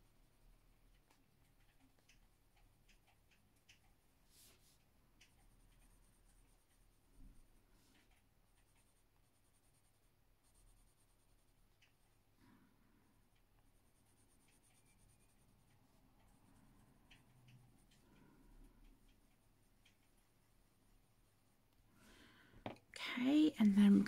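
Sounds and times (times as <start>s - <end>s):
pencil scratching on paper: 4.3s - 7.4s, 8.0s - 12.2s, 13.6s - 18.0s.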